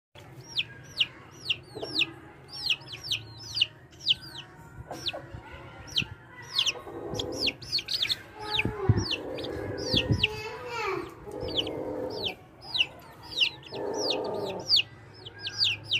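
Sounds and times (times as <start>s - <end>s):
chicks peeping: 0.2s - 15.9s.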